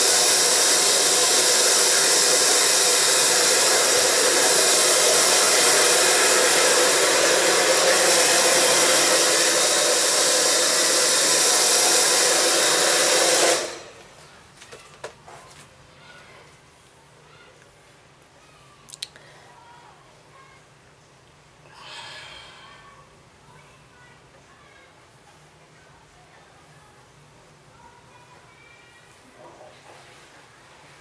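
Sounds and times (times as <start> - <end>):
hair dryer blowing: 0.0 - 14.0
faint clicks: 18.9 - 19.2.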